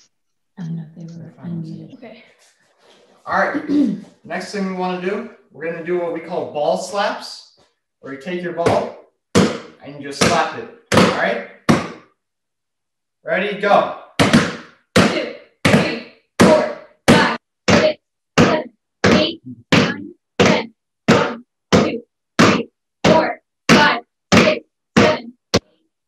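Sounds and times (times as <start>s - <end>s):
hand slapping a basketball: 8.7s - 12.1s, 14.2s - 25.7s.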